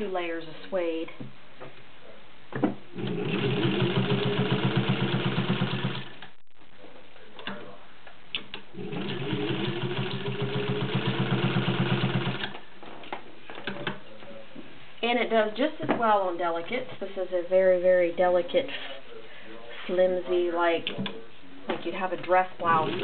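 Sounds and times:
sewing machine stitching: 3.0 - 6.2, 8.8 - 12.6, 22.7 - 23.0.

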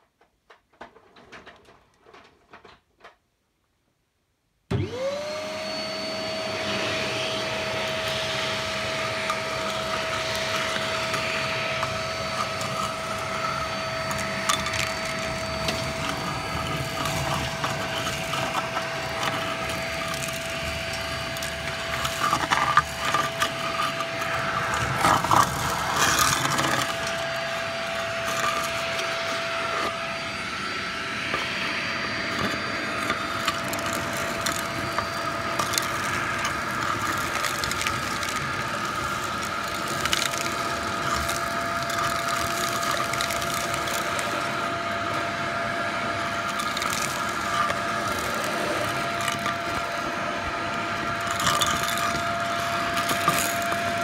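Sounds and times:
vacuum motor whining: 4.7 - 54.0
debris rattling in vacuum hose: 4.8 - 54.0.

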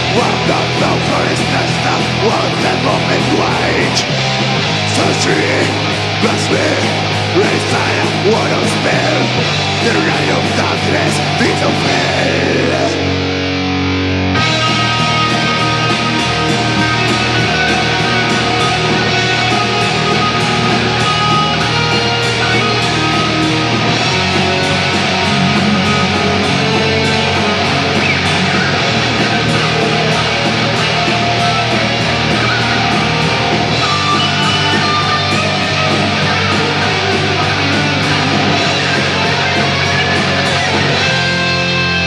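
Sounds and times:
bass guitar: 0.0 - 42.0
distorted electric guitars: 0.0 - 42.0
drum beat: 14.6 - 41.6.

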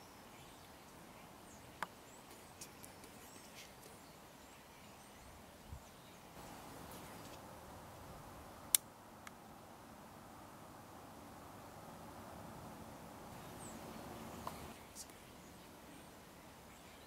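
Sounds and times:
bird chirps: 13.4 - 17.0.

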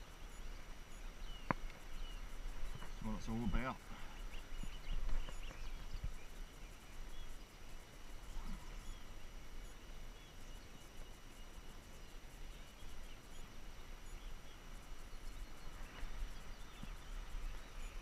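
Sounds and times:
faint bird chirps: 0.0 - 18.0.

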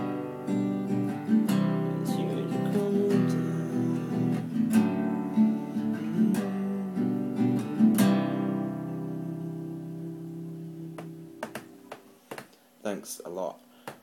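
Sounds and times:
acoustic guitar strumming chords: 0.0 - 12.2.

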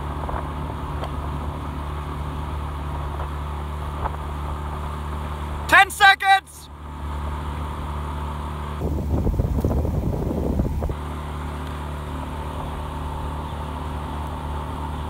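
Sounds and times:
outboard motor running: 0.0 - 15.0
wind buffeting microphone: 8.8 - 11.0.

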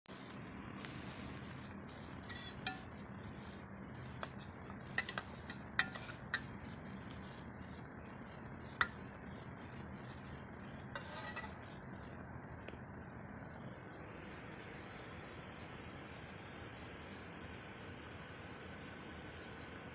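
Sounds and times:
steady low hum: 0.1 - 19.9
spoon clinking and scraping pan: 2.3 - 3.0, 4.1 - 6.6, 8.8 - 9.0, 10.9 - 11.8.

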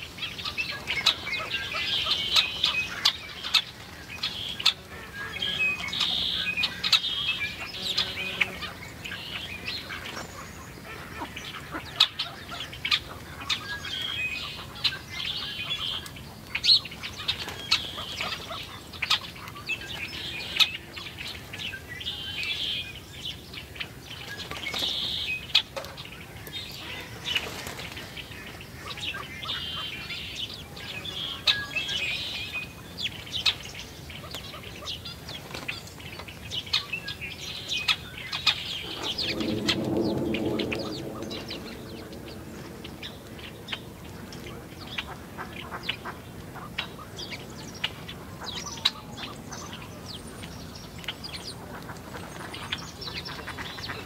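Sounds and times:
sparrows chirping: 0.0 - 54.0
wing flutters: 38.6 - 44.6.

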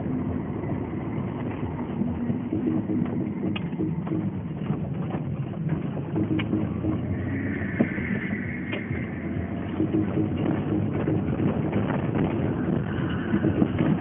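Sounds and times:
car engine in cabin: 0.0 - 14.0
tyre road noise: 0.0 - 14.0.

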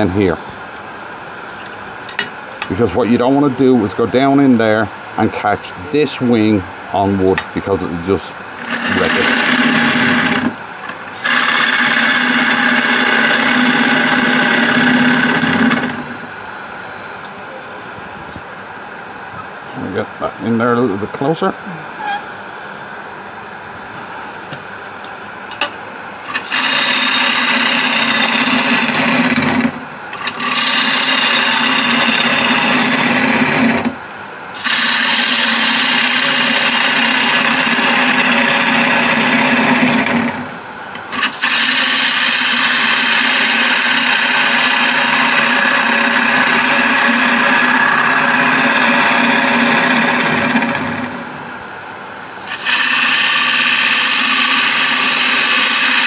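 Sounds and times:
wood lathe running: 8.5 - 16.3, 26.2 - 34.0, 34.6 - 51.4, 52.4 - 56.0
gouge scraping wood: 8.6 - 10.5, 30.2 - 33.8.

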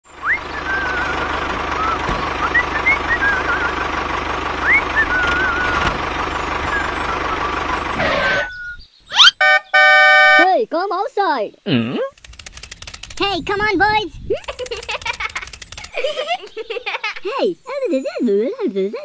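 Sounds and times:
tractor engine idling: 0.0 - 8.6, 12.2 - 13.8, 14.4 - 16.9
birds chirping: 0.0 - 19.0
rising whistle glides: 0.2 - 3.9, 4.6 - 5.8
steady horn-like tone: 9.4 - 10.4.

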